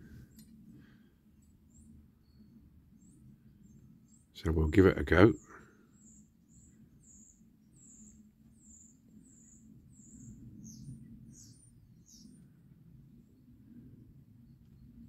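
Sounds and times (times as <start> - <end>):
low steady background hum: 0.0 - 15.0
bird chirping: 1.6 - 12.6.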